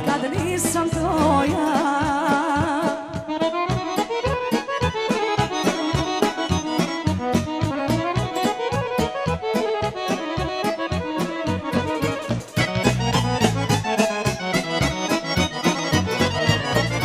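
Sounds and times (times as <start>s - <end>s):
accordion playing quick runs: 1.7s - 17.0s
steady beat: 3.6s - 17.0s.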